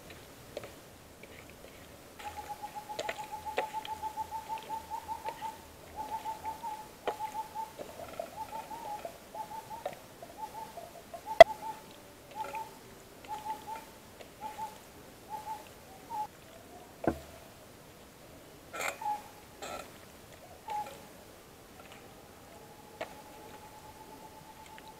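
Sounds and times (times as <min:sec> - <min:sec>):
bird calling repeated notes: 0:02.2 - 0:16.3, 0:20.6 - 0:21.0.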